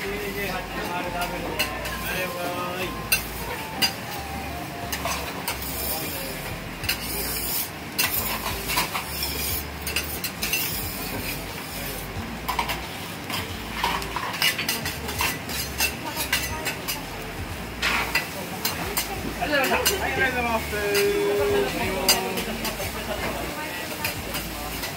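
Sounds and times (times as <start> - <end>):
food sizzling on hot plate: 0.0 - 24.9
metal spatulas scraping on griddle: 0.3 - 4.1, 4.9 - 17.1, 17.8 - 24.9.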